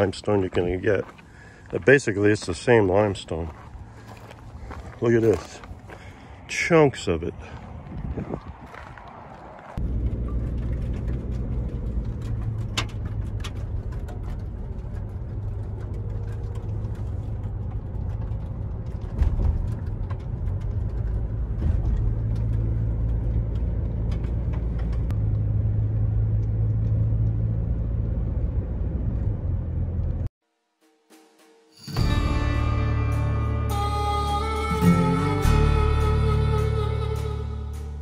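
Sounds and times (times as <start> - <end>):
vehicle engine and road drone: 0.0 - 30.3, 32.0 - 38.0
vehicle bump: 9.8 - 29.4.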